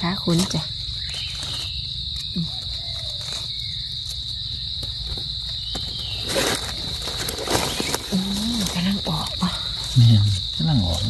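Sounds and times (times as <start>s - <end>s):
insects chirring: 0.0s - 11.0s
leaf litter rustle: 0.2s - 4.4s, 6.0s - 10.1s.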